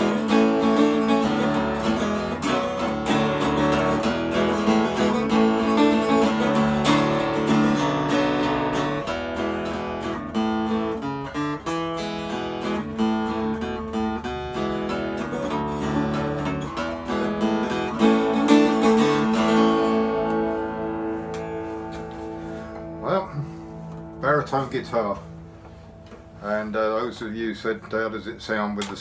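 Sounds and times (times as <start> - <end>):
acoustic guitar plucked notes and chords: 0.0 - 27.2.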